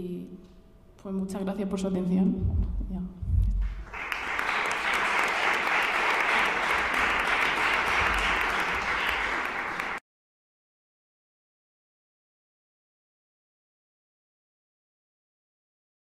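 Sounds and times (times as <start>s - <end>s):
audience applause: 3.6s - 10.0s.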